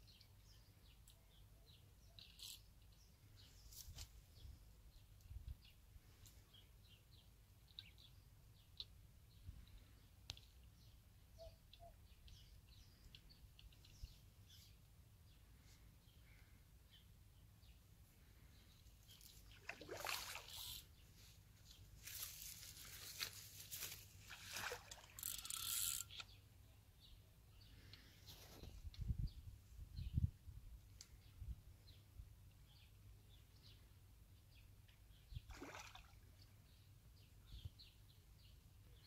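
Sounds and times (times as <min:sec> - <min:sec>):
faint bird chirps: 0:00.0 - 0:23.9
fish splashing and thrashing: 0:19.6 - 0:20.8, 0:24.3 - 0:25.4.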